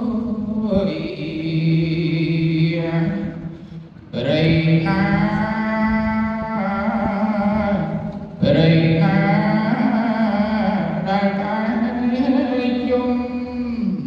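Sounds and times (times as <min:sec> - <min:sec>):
man chanting: 0:00.0 - 0:03.5, 0:04.1 - 0:14.0
breath: 0:03.4 - 0:04.1.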